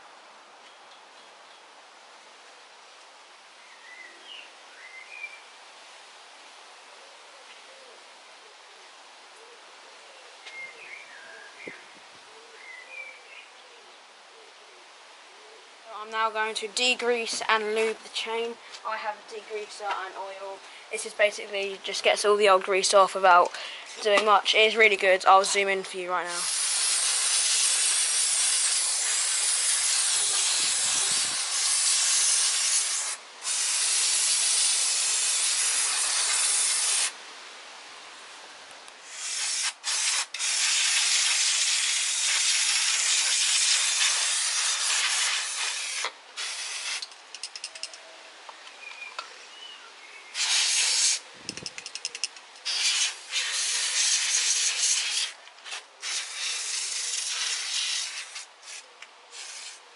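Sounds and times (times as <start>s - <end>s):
aerosol spray hissing: 26.3s - 37.2s, 39.0s - 47.1s, 50.3s - 51.2s, 52.6s - 59.8s.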